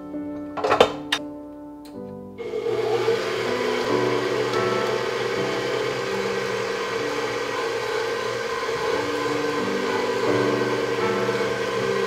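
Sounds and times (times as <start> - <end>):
stand mixer running: 2.4 - 12.0.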